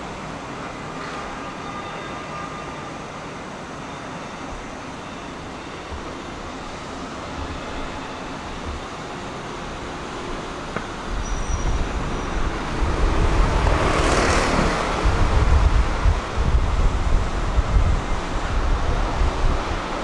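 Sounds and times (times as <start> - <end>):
street traffic: 0.0 - 20.0
tram running: 0.0 - 20.0
broad rushing noise: 2.2 - 20.0
wind buffeting microphone: 10.8 - 20.0.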